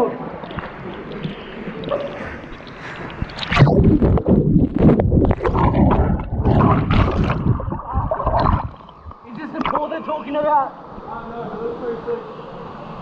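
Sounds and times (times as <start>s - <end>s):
water splashing from swimming: 0.4s - 9.9s.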